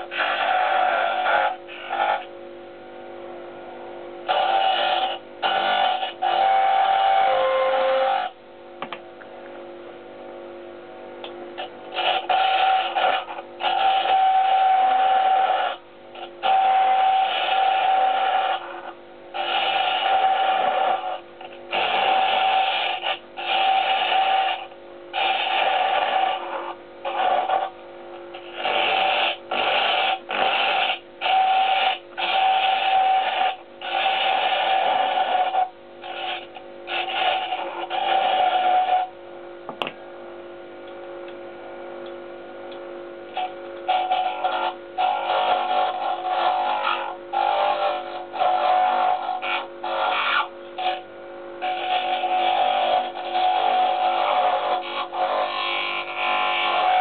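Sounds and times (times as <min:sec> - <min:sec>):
lathe tool cutting wood whine: 0:04.3 - 0:08.3, 0:16.4 - 0:18.8, 0:28.6 - 0:39.1, 0:43.4 - 0:51.0, 0:51.6 - 0:57.0.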